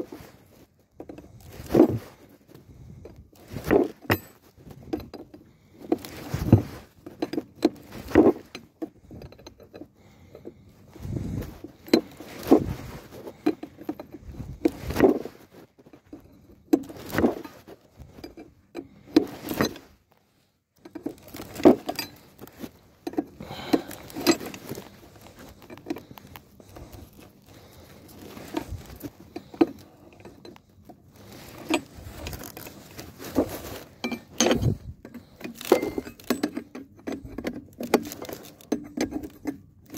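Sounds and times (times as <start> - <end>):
hand tools clinking on steel: 20.8 - 26.2, 33.4 - 39.7.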